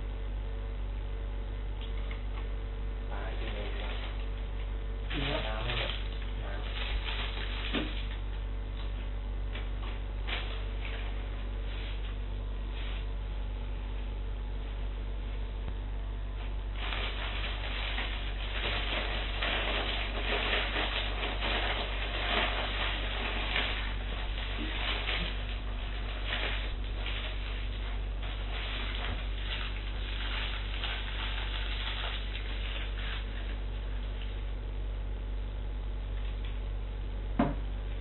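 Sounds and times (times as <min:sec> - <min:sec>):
low electrical hum: 0:00.0 - 0:38.0
paper wrapper crinkling: 0:05.1 - 0:08.2, 0:09.8 - 0:12.2, 0:16.4 - 0:34.3.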